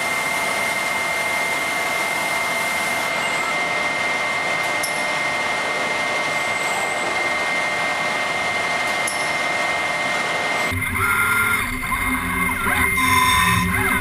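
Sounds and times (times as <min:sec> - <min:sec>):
high-pitched whine: 0:00.0 - 0:14.0
industrial machine noise: 0:00.0 - 0:14.0.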